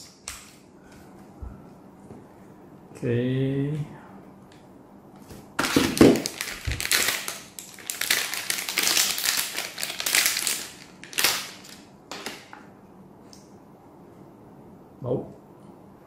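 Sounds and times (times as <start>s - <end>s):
foil packet crinkling and tearing: 5.6s - 12.5s.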